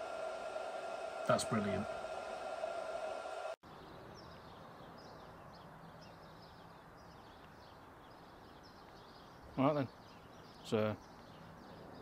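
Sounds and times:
small birds chirping: 3.6s - 12.0s.

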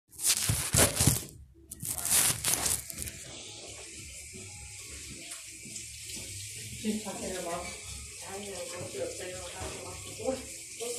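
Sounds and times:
phone rustling against microphone: 0.2s - 3.3s.

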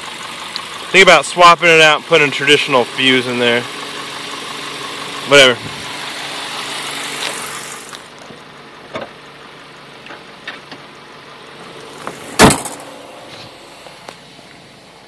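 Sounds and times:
engine idling faintly: 0.0s - 15.0s
car hood slamming shut: 12.0s - 13.0s.

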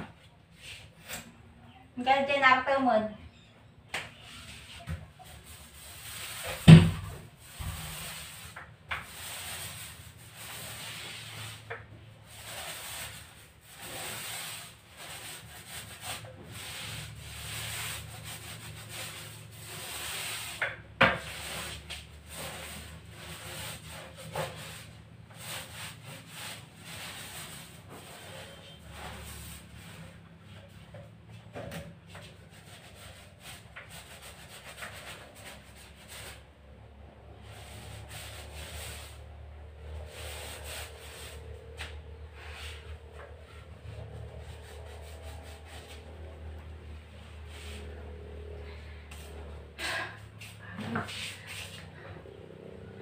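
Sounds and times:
paint roller rubbing on wall: 4.1s - 53.0s.

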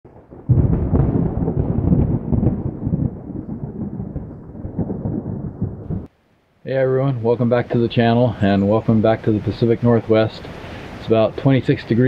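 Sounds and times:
loud rumbling: 0.4s - 6.1s.

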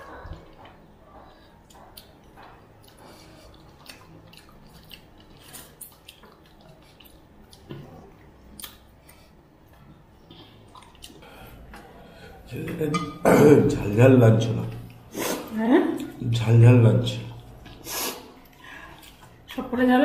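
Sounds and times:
wet chewing and lip smacks: 0.2s - 12.0s, 17.3s - 19.6s.

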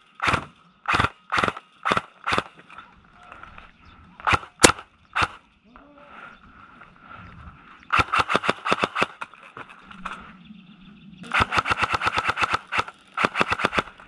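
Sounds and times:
airsoft guns firing rapidly: 0.2s - 2.5s, 4.2s - 5.4s, 7.9s - 9.4s, 11.2s - 14.0s.

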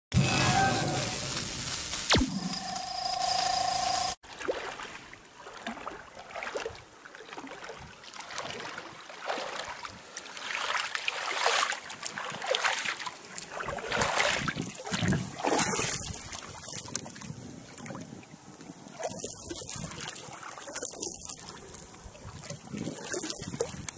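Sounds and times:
water sloshing and splashing: 4.2s - 23.9s.

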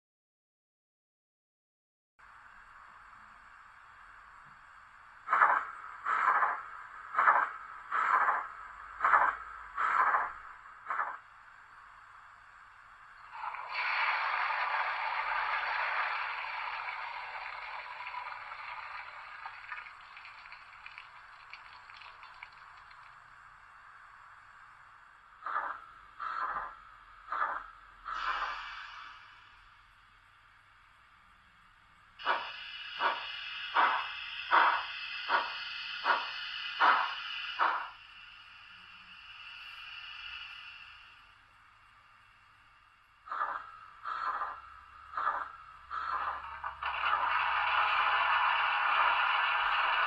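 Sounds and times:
model locomotive steam chuffs: 5.2s - 11.2s, 13.2s - 23.7s, 25.2s - 29.8s, 32.2s - 41.6s, 43.2s - 50.0s
rushing hissing water effect: 13.3s - 24.5s, 27.3s - 29.5s, 32.2s - 41.4s, 45.2s - 50.0s.

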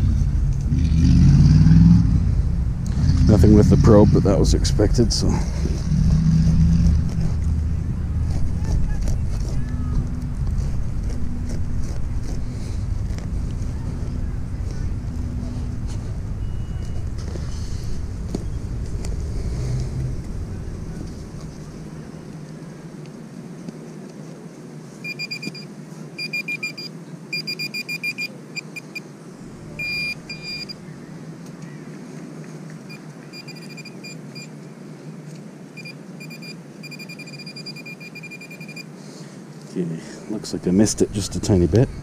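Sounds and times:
low rumble: 0.0s - 22.6s, 29.4s - 31.1s
metal detector probe beeping: 25.0s - 29.0s, 29.8s - 30.8s, 32.9s - 34.5s, 35.8s - 38.9s.

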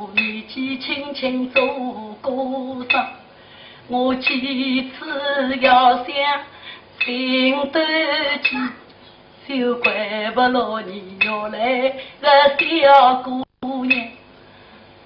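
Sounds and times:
woman singing opera: 0.0s - 3.1s, 3.9s - 6.5s, 7.1s - 8.8s, 9.5s - 14.2s
sharp percussion clicks: 1.5s - 1.8s, 13.8s - 14.3s.

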